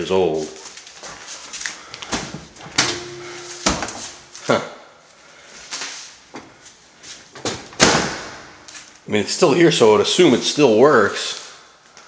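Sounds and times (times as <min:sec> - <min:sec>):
oven door latch clicks and clunks: 0:02.7 - 0:04.1
oven door squeak: 0:02.7 - 0:04.4.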